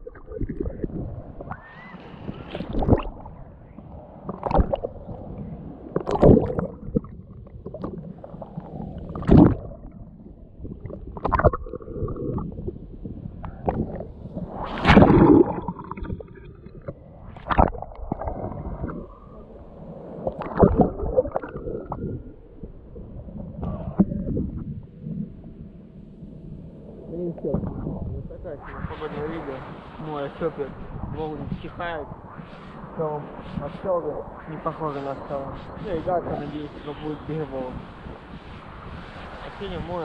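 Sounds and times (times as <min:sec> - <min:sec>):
muffled underwater gurgling: 0:00.0 - 0:25.4, 0:27.1 - 0:32.2
sea water splashing: 0:00.0 - 0:25.4.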